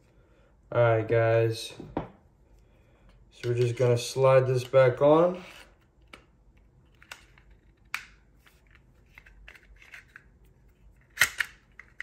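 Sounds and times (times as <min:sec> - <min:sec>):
pistol slide clicking and scraping: 0:11.0 - 0:12.0.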